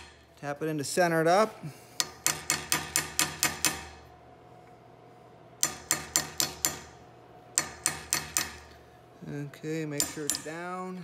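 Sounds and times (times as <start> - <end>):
hammer tapping metal block: 2.0 - 3.9, 5.6 - 6.9, 7.6 - 8.6, 10.0 - 10.6.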